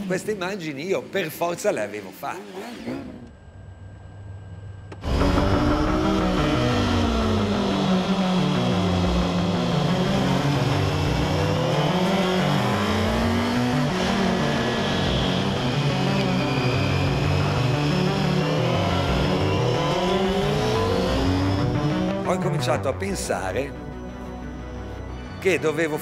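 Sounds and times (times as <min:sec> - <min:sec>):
motorcycle engine revving high: 0:05.0 - 0:22.9.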